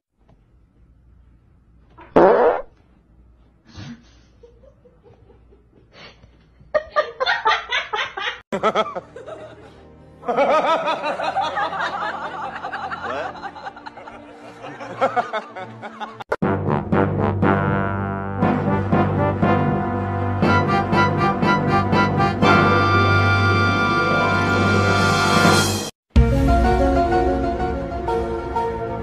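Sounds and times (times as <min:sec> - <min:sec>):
laughter in bursts: 0:04.1 - 0:16.4
music: 0:08.6 - 0:29.0.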